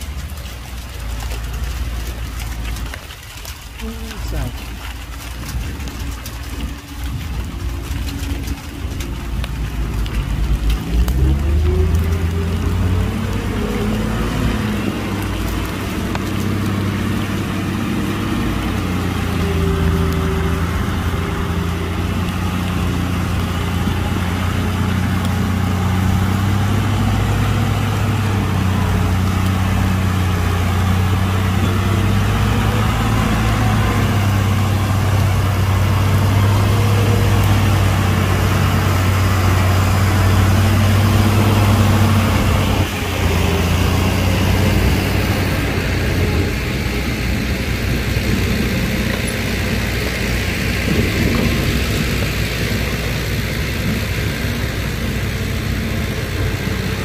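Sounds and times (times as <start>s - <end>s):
heavy diesel engine droning: 0.0s - 57.0s.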